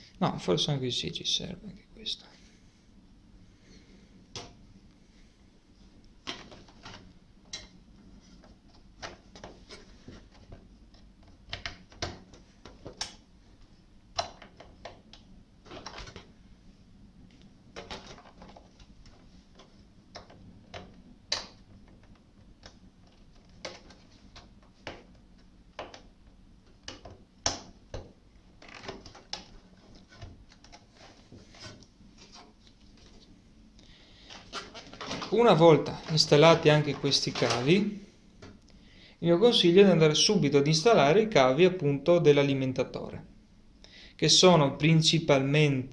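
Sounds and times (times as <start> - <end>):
cables rustling: 3.5 - 38.8.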